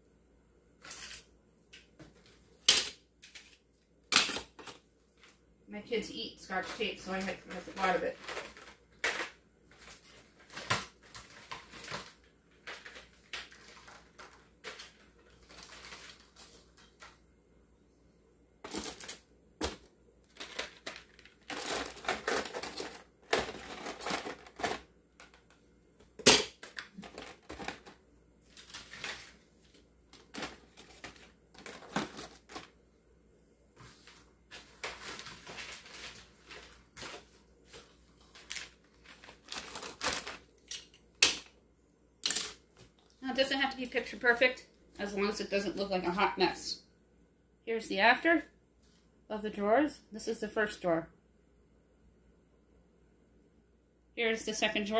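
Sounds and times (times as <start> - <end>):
plastic packages rustling: 0.8 - 1.3, 2.1 - 5.4, 6.5 - 17.2, 18.6 - 25.6, 26.2 - 32.8, 33.8 - 41.5
small items clicking and knocking: 6.6 - 17.2, 18.6 - 29.3.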